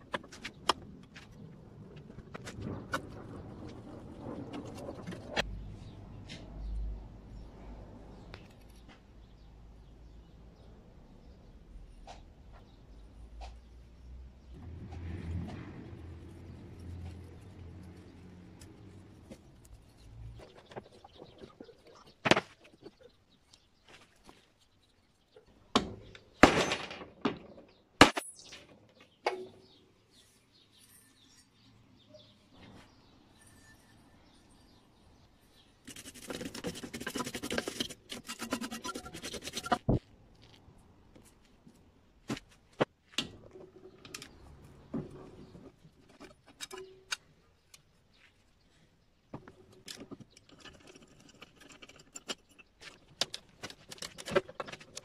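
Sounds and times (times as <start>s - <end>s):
rough scraping: 35.8s - 40.6s.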